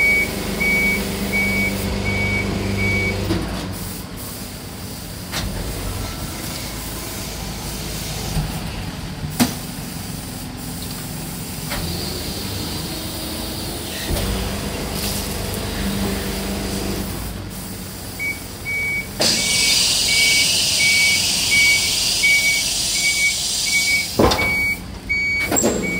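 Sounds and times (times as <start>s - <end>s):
high warning beep: 0.0s - 3.2s, 18.2s - 25.9s
truck engine and hydraulics: 0.0s - 25.9s
garbage truck packing mechanism: 11.6s - 17.4s, 18.6s - 25.9s
loud hiss: 19.2s - 24.2s.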